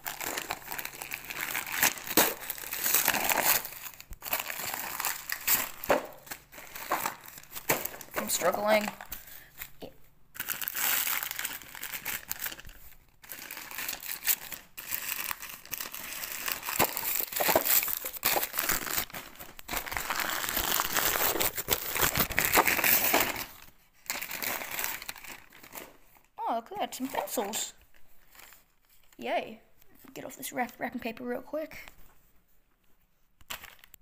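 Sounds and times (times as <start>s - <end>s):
wrapping paper crinkling and tearing: 0.0s - 26.1s, 27.1s - 29.2s, 33.4s - 34.0s.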